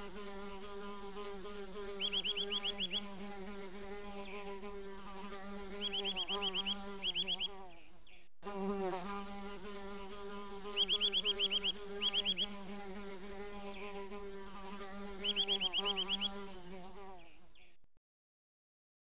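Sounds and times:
flying insect buzzing: 0:00.0 - 0:17.8
quick high-pitched chirps: 0:10.8 - 0:12.5.

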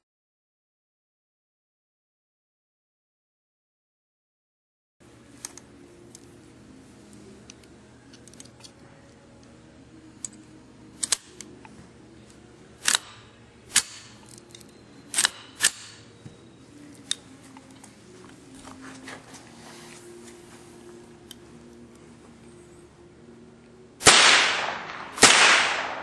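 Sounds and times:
metallic clicks of rifle loading: 0:07.4 - 0:09.6, 0:10.2 - 0:11.8, 0:12.8 - 0:16.2, 0:16.8 - 0:18.0.

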